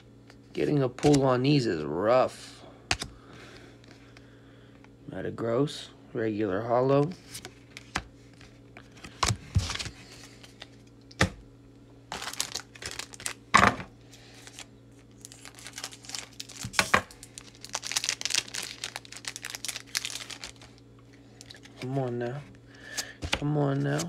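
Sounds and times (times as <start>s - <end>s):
foil wrapper crinkling: 12.1s - 13.5s, 14.2s - 22.2s.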